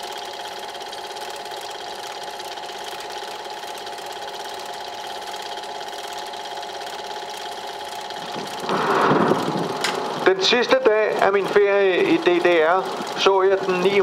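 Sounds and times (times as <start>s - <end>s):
fast even ticking of film: 0.0s - 14.0s
film projector whirring: 0.0s - 14.0s.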